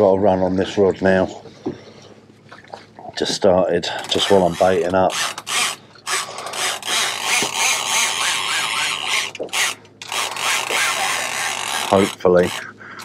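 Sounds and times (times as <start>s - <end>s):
fishing reel clicker buzzing: 4.1s - 12.7s.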